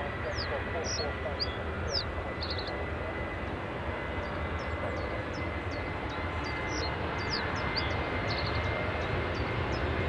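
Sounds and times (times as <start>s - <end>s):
jet engines running with whine: 0.0s - 10.0s.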